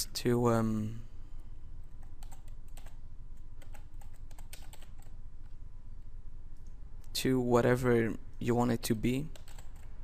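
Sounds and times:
faint low hum: 0.0 - 10.0
keyboard typing clicks: 2.0 - 3.0, 3.6 - 5.1, 9.3 - 9.9.

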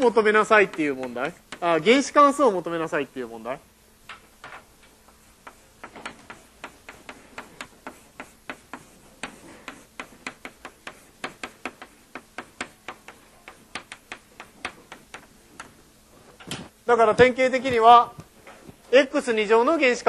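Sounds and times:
chalk tapping on blackboard: 0.4 - 1.8, 5.1 - 15.8.

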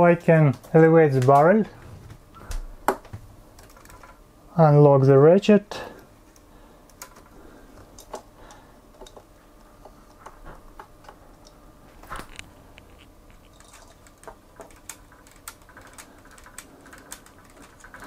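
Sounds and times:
plastic toy parts clicking: 13.5 - 18.0.

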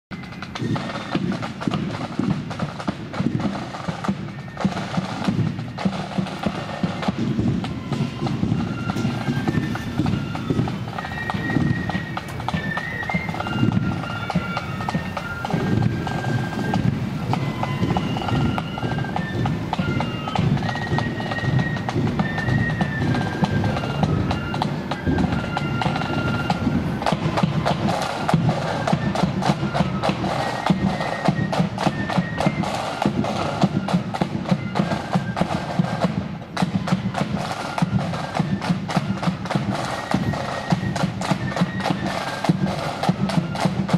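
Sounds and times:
flutes playing melody: 0.1 - 43.9
snare drumming: 0.1 - 43.9.

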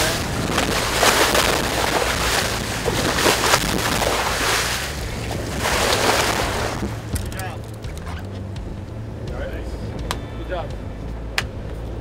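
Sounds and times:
water splashing along boat hull: 0.0 - 8.5
steady low rumble: 0.0 - 12.0.

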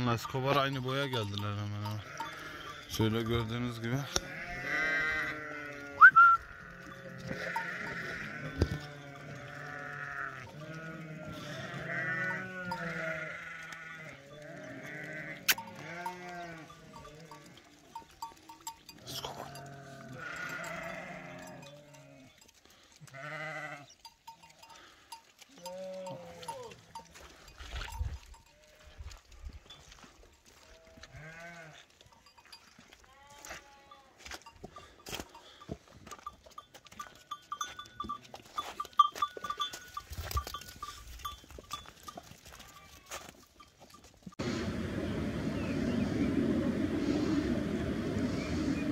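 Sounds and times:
sheep bleating: 1.9 - 3.0, 4.0 - 18.0, 19.0 - 22.4, 23.0 - 24.0, 25.6 - 27.4, 30.7 - 31.9, 33.0 - 34.2, 42.5 - 43.3
light clinks: 34.4 - 44.2.

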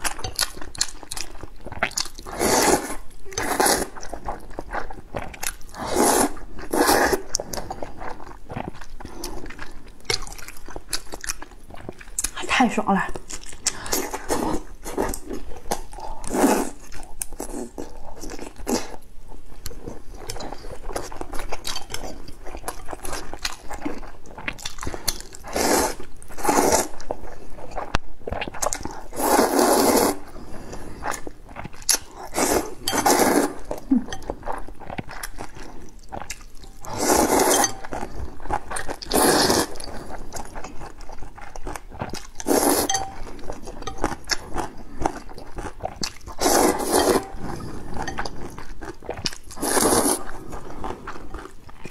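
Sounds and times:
wet chewing: 0.0 - 12.4, 13.1 - 51.9
slurping noodles: 1.8 - 9.5, 16.1 - 17.8, 25.4 - 27.0, 28.5 - 31.3, 32.2 - 34.2, 36.8 - 40.2, 42.4 - 43.1, 45.9 - 51.0.

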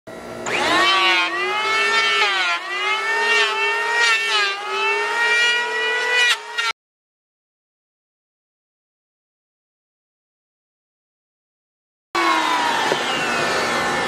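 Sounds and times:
electric hand planer whining: 0.1 - 6.8, 12.2 - 14.0.

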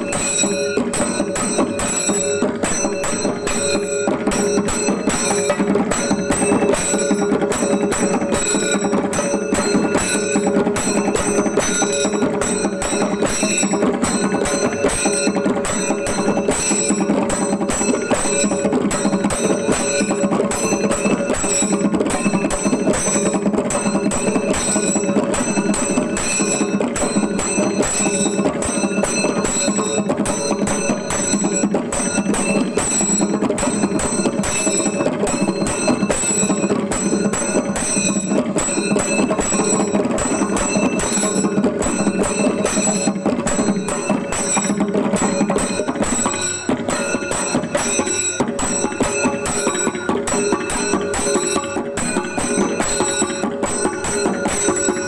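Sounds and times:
drums played with sticks: 0.0 - 55.0
metal cymbals ringing: 0.0 - 55.0.

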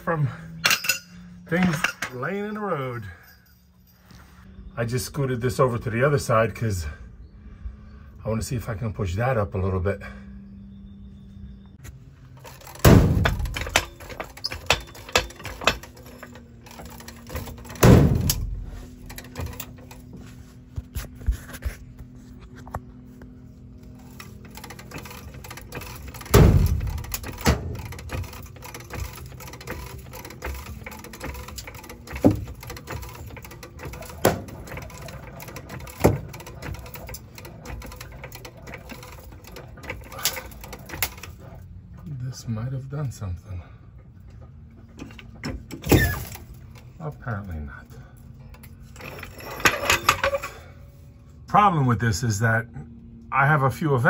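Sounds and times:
panel rattling: 12.3 - 20.2, 23.7 - 42.0.

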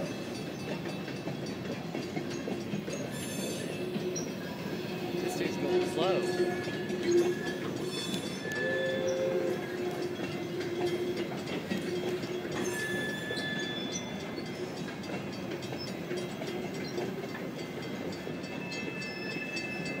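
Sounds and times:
freight train wheels rumbling: 0.0 - 20.0
wheels clicking over rail joints: 0.0 - 20.0
thin wheel squeal: 5.2 - 9.9, 11.8 - 14.6.

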